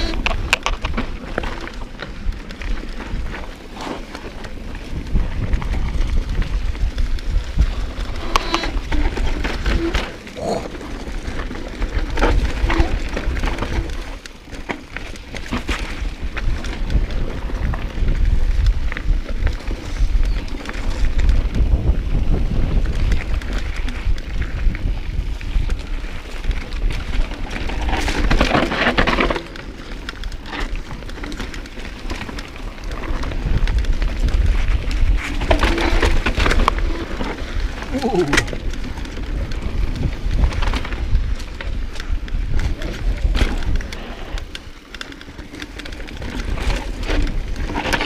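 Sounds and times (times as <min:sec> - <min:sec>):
bike rattling: 0:00.0 - 0:48.0
bike tyres crunching on dirt: 0:00.0 - 0:48.0
wind rumble on microphone: 0:00.0 - 0:48.0.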